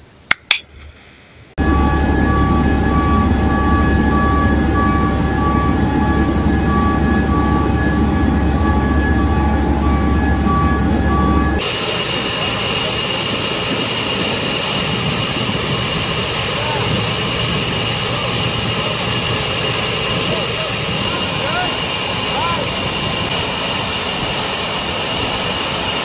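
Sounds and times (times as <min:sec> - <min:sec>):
machinery rumble: 0:00.7 - 0:26.0
jet engines whining: 0:00.9 - 0:26.0
repeating beep: 0:01.7 - 0:11.6.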